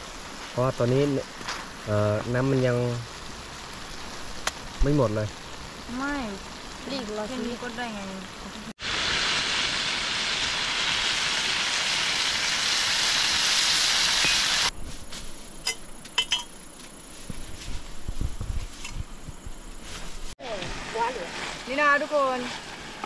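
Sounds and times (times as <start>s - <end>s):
food sizzling in hot oil: 0.0s - 14.8s, 17.3s - 23.0s
utensil clinking against pot: 15.7s - 16.6s.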